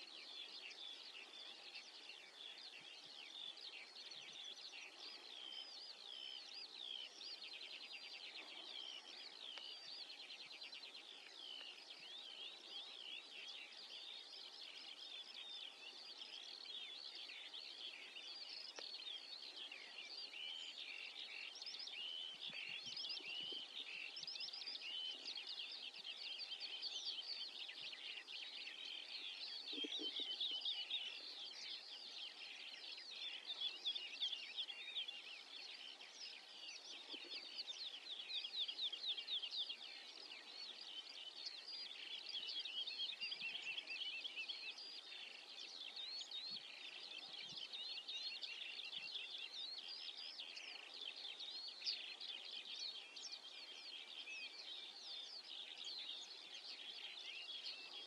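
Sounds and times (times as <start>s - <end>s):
songbirds chirping and trilling: 0.0s - 58.0s.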